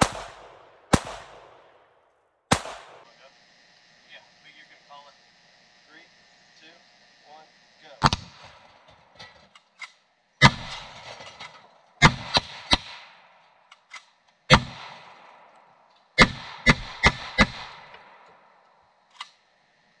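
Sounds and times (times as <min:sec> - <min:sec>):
echoing gunshots: 0:00.0 - 0:03.1, 0:08.0 - 0:09.2, 0:10.4 - 0:11.4, 0:12.0 - 0:13.6, 0:14.5 - 0:15.6, 0:16.2 - 0:18.5.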